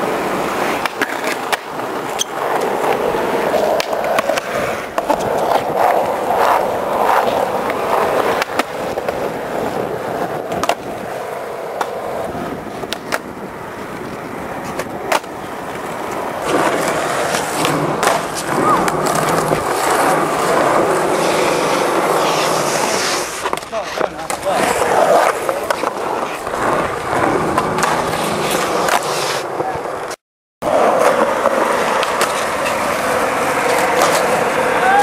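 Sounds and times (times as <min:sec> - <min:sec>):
skateboard truck grinding ledge: 0:00.0 - 0:29.6, 0:30.6 - 0:35.0
skateboard clacks: 0:00.0 - 0:35.0
skateboard wheels rolling on concrete: 0:00.0 - 0:35.0.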